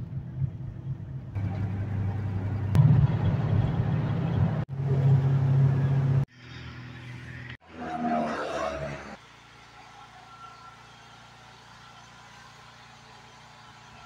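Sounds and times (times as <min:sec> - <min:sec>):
car engine hum: 0:00.0 - 0:06.3
road noise: 0:00.0 - 0:14.0.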